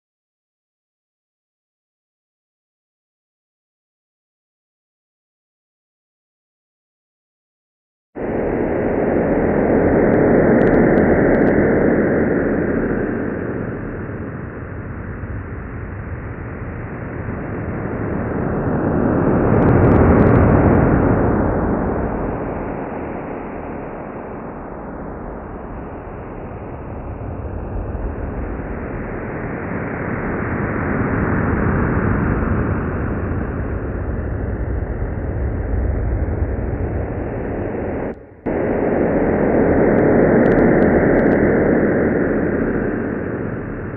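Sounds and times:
radar-like sweep: 8.2s - 31.8s, 35.8s - 43.9s
dense hissing drone: 8.2s - 43.9s.

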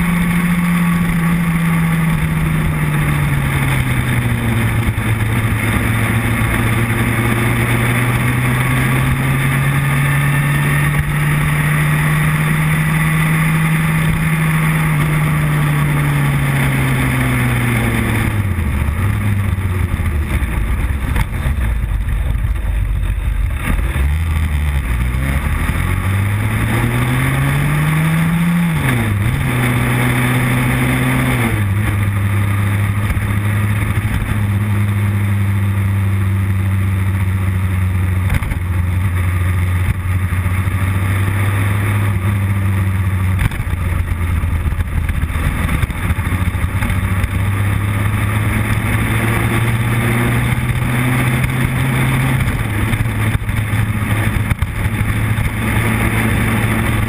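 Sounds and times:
motorcycle engine running: 0.0s - 57.0s
wind noise on microphone: 39.8s - 57.0s.

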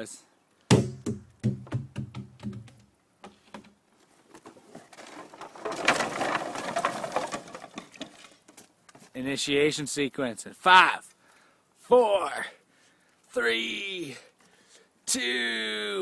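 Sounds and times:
loose boards knocking underfoot: 0.7s - 9.1s.

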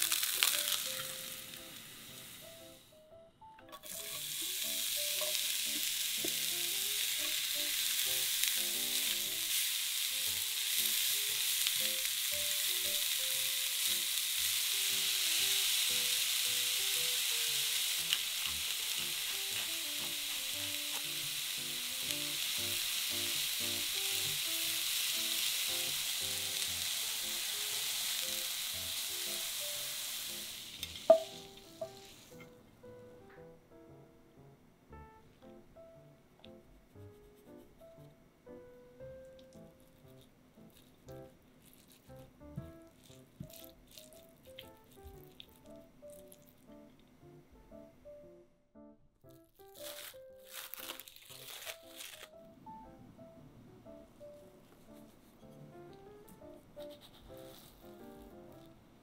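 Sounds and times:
vegetables sizzling in a frying pan: 0.0s - 2.8s, 3.7s - 32.5s, 49.8s - 52.3s.

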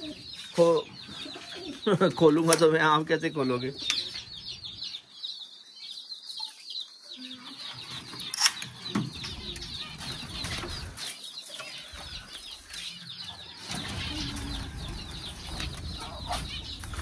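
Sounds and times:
small birds chirping: 0.0s - 17.0s
wings fluttering: 13.5s - 17.0s.

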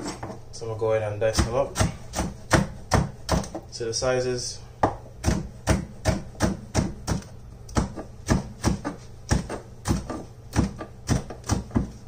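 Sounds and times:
knife chopping on wooden board: 1.3s - 3.7s, 4.8s - 12.0s.

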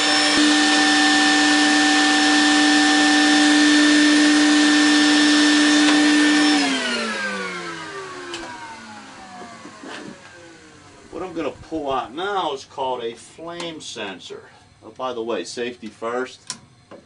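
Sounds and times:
vacuum motor spinning down: 0.0s - 11.5s
vacuum cleaner running: 0.0s - 12.4s.

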